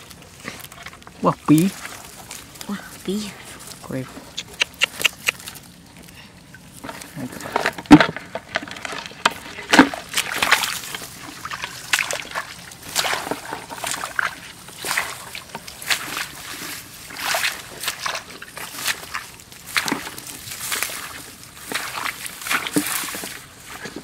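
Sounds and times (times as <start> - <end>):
shallow water sloshing and splashing: 0.0 - 2.6, 6.8 - 24.0.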